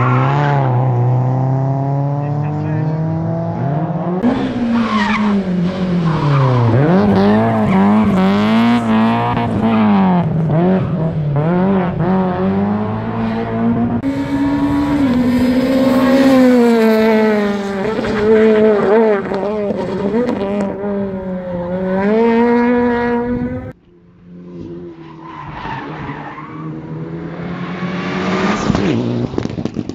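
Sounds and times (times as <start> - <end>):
car engine revving: 0.0 - 25.4, 26.0 - 29.9.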